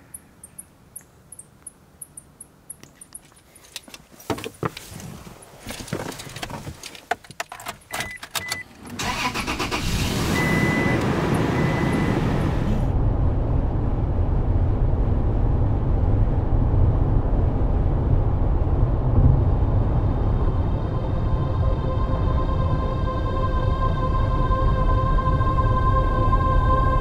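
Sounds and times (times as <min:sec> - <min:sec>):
engine and road noise in cabin: 0:00.0 - 0:23.0
car engine starting: 0:07.6 - 0:21.6
beeping dashboard chime: 0:10.4 - 0:12.6.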